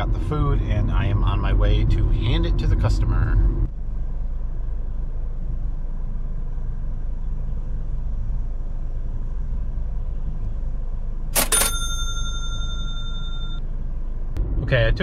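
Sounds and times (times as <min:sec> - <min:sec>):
cash register ka-ching effect: 0:11.4 - 0:13.6.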